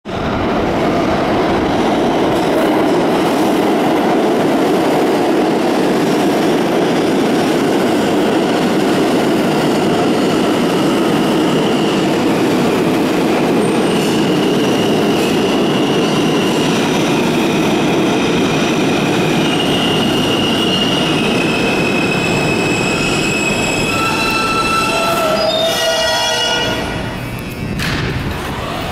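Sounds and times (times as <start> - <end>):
train wheels on rails: 0.0 - 28.9
high-pitched brake squealing: 19.4 - 27.8.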